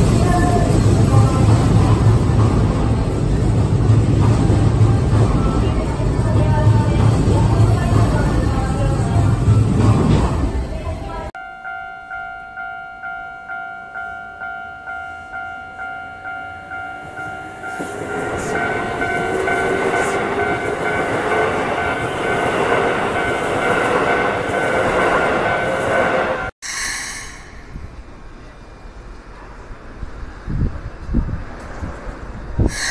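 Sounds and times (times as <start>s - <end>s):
train passing: 0.0s - 32.9s
level crossing bell beeping: 11.4s - 26.5s.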